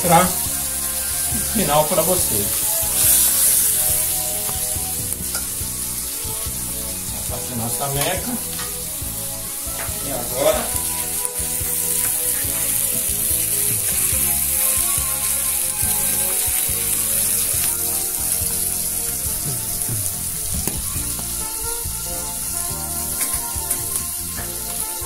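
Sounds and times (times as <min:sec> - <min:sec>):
fish sizzling on hot iron: 0:00.0 - 0:25.0.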